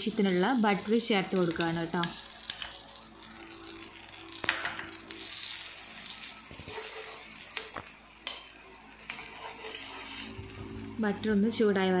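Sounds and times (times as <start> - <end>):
butter sizzling in a pan: 0.0 - 12.0
spoon spreading butter in pan: 6.0 - 8.4, 9.0 - 10.4.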